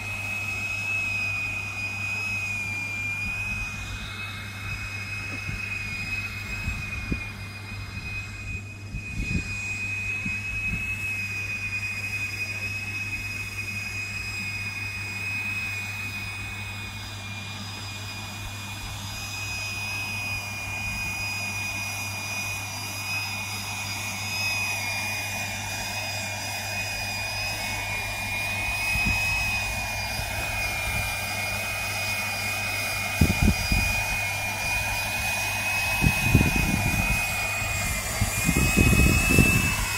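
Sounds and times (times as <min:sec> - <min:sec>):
model copter high whine: 0:00.0 - 0:39.9
wavering lower tone: 0:00.0 - 0:39.9.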